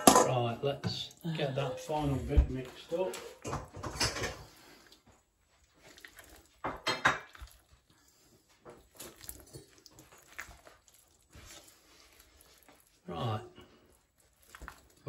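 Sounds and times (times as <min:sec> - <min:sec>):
pots and utensils clinking: 0:00.0 - 0:04.8, 0:06.6 - 0:07.6
batter stirred with spatula in bowl: 0:00.3 - 0:15.0.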